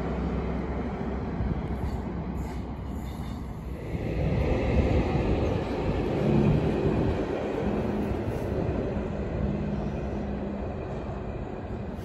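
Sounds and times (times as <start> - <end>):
train passing rumble: 0.0 - 12.0.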